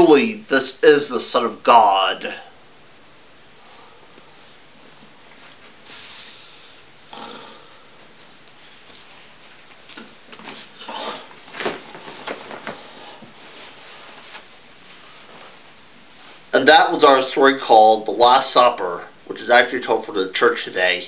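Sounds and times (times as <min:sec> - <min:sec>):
person breathing: 0:03.6 - 0:04.4, 0:05.8 - 0:08.0
soft rustling: 0:04.0 - 0:06.4, 0:08.0 - 0:16.6.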